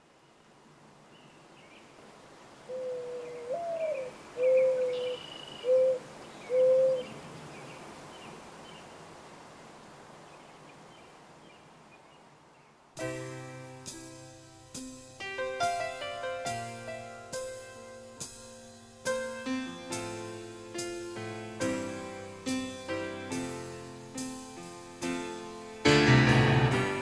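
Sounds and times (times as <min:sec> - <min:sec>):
dove cooing: 0:02.6 - 0:07.3
faint bird chirps: 0:02.7 - 0:08.9
piano music: 0:13.0 - 0:27.0.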